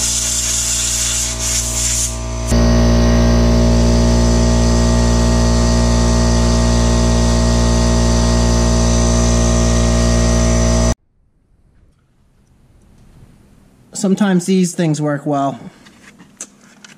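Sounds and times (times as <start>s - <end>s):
loud machine hum: 0.0s - 11.0s.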